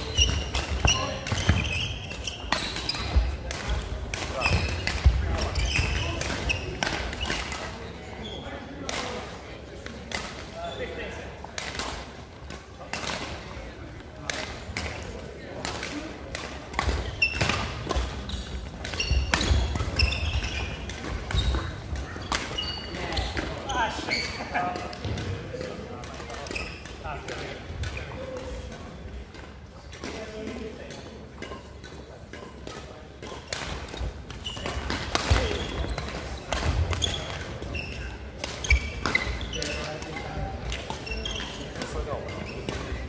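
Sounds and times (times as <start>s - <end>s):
shoes squeaking on wooden floor: 0.0s - 3.4s, 4.4s - 7.4s, 17.0s - 23.4s, 34.0s - 43.0s
racket hitting shuttlecock: 0.0s - 7.8s, 10.1s - 10.5s, 11.5s - 23.6s, 24.7s - 43.0s.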